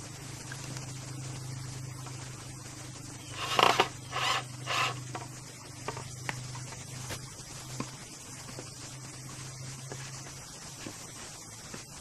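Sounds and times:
cordless drill driving screw into wood: 3.4 - 5.0.

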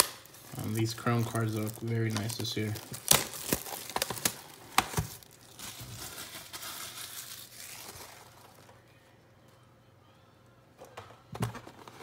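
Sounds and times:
cellophane crackling and crinkling: 0.0 - 9.0.

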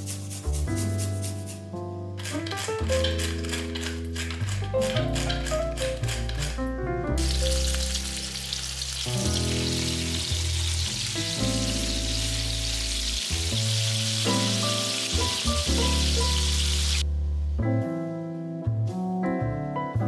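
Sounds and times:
piano music: 0.0 - 20.0
patties sizzling in a frying pan: 7.2 - 17.0.

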